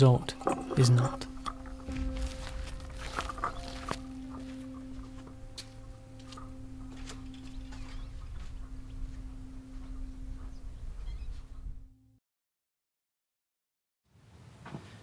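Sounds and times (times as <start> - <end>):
sustained note of soft music: 0.6 - 12.2
faint low rumble: 1.2 - 12.1.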